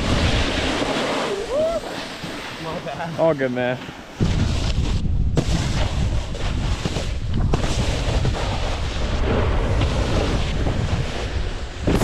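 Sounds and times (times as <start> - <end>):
snowboard scraping over snow: 0.0 - 12.0
wind buffeting microphone: 4.2 - 12.0.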